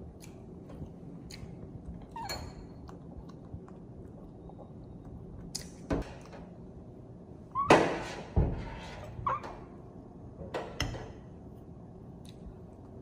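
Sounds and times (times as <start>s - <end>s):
kitchen knocks and clunks: 7.6s - 8.8s.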